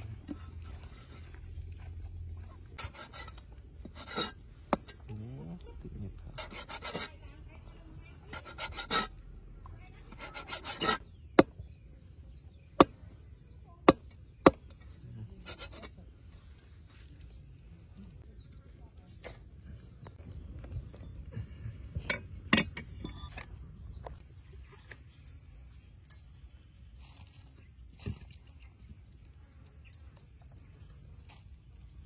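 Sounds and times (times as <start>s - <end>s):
cleaver chopping on wooden block: 13.9s - 14.8s.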